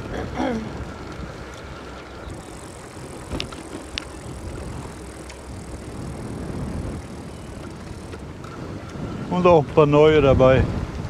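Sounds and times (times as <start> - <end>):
wind on microphone: 0.0 - 11.0
sharp clicks: 2.8 - 4.6.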